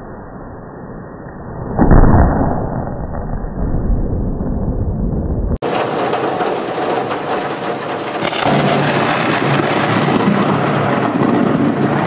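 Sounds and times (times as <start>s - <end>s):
thunder rumbling: 1.9s - 12.0s
heavy rain falling: 5.6s - 12.0s.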